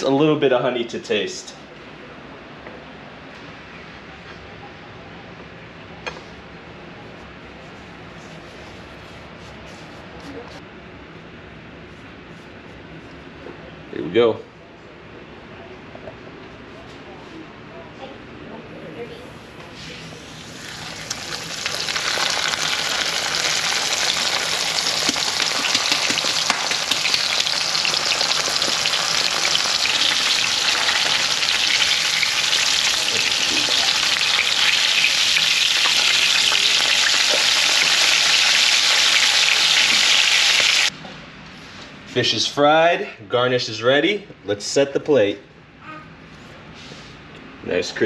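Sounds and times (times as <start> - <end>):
fish frying in oil: 20.0 - 40.9.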